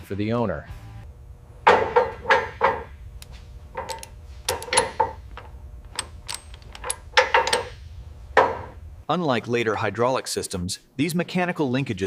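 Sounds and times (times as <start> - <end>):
hand tools clanking on metal: 3.8 - 7.8.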